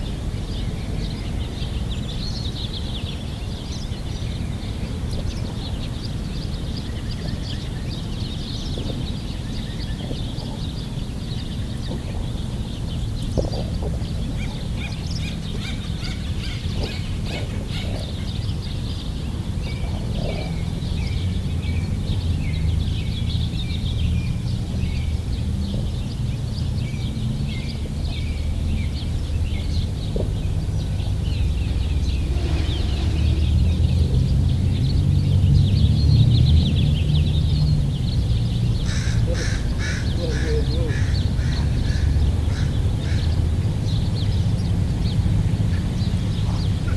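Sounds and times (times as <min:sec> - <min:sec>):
small birds chirping: 0:00.0 - 0:46.9
low rumble: 0:27.8 - 0:38.8.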